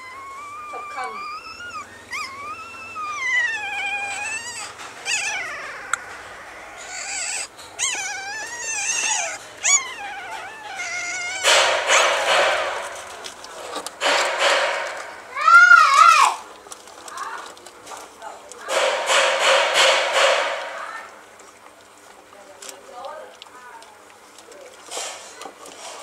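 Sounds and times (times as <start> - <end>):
puppies whimpering: 0.0 - 17.8.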